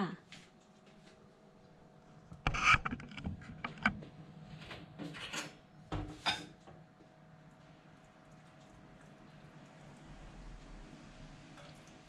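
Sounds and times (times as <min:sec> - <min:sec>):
kitchen clatter: 0:05.0 - 0:06.6.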